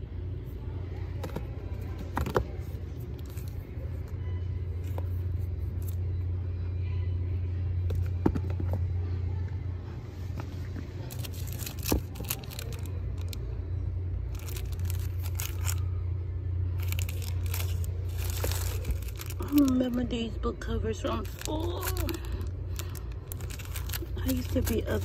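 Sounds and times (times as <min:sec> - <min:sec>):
steady low hum: 0:00.0 - 0:25.0
plastic wrapping crinkling: 0:11.1 - 0:13.4, 0:14.3 - 0:15.9, 0:16.8 - 0:20.0, 0:21.2 - 0:25.0.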